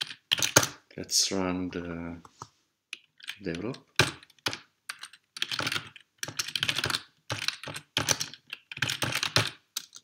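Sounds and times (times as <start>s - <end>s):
computer keyboard typing: 0.0s - 0.8s, 2.9s - 10.0s.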